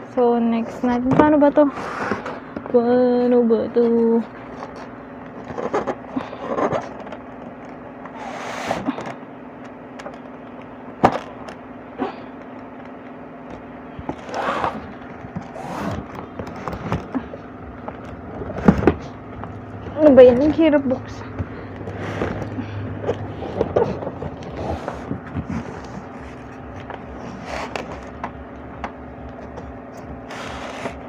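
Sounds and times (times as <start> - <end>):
steady low hum: 0.0 - 31.0
packaging rustling and scraping: 0.6 - 2.8, 3.8 - 9.2, 14.0 - 31.0.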